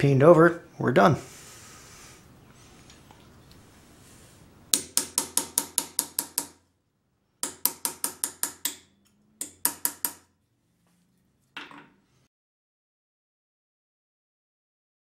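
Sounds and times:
hammer tapping metal punch: 4.7 - 6.6, 7.4 - 10.3.

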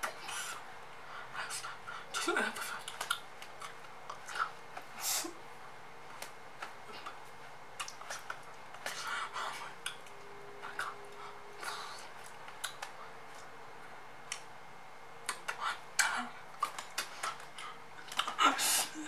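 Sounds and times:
breathy whispered bursts: 0.0 - 3.1, 8.0 - 10.0, 15.3 - 19.0
mouth clicks: 7.8 - 9.0.

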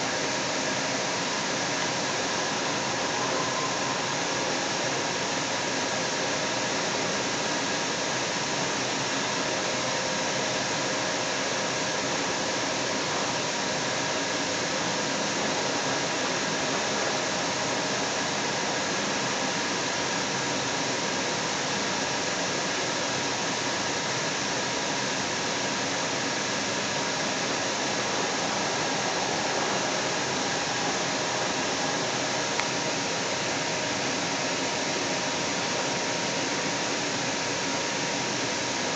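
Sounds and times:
faint steady hum: 0.0 - 38.9
train rushing noise: 1.4 - 6.4, 26.6 - 34.8.

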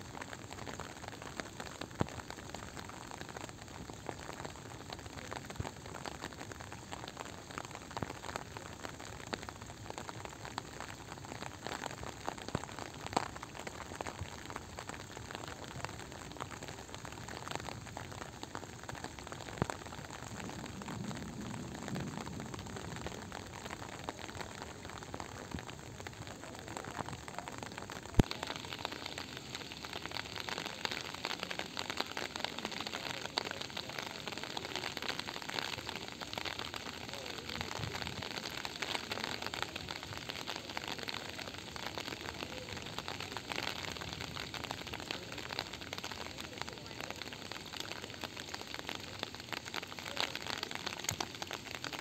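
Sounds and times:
steady rain falling: 0.0 - 52.0.

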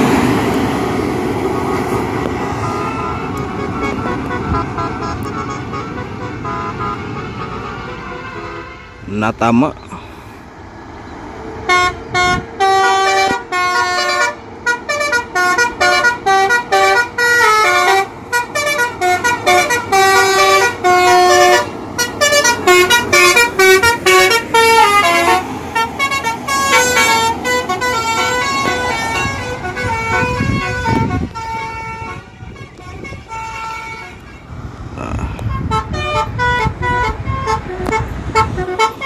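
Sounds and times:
bus engine and tyres passing: 0.0 - 39.0
musical bus horn melody: 2.4 - 9.2, 11.6 - 34.6, 35.2 - 39.0.

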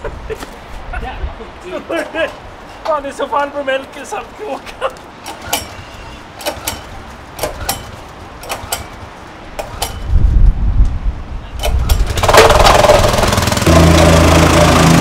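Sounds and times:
small engine starting and running: 5.2 - 9.0, 11.6 - 15.0
clicks and knocks: 6.4 - 9.0.

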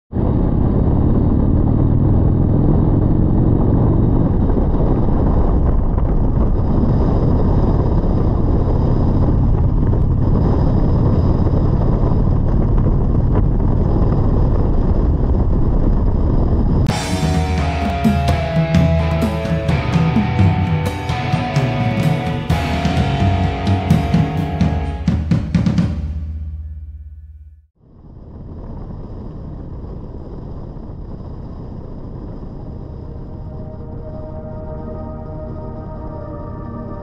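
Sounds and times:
wind noise: 0.1 - 25.4, 27.8 - 37.0
road noise: 0.1 - 27.0
motorcycle engine cruising: 0.2 - 26.7.

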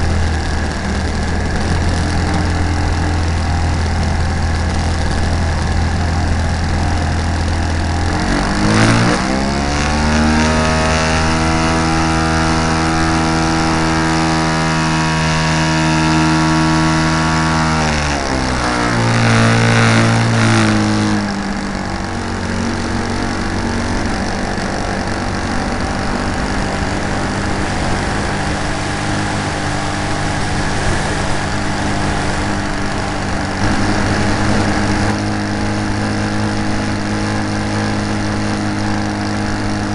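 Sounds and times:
model airplane engine and propeller: 0.0 - 39.9
rush of air: 19.1 - 37.5.

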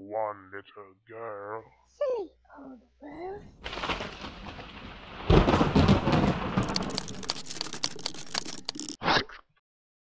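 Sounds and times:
sharp clicks and crackles: 6.0 - 9.0.

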